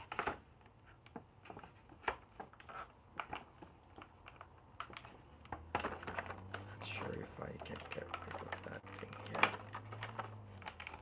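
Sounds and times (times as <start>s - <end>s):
plastic packaging crackling: 0.0s - 11.0s.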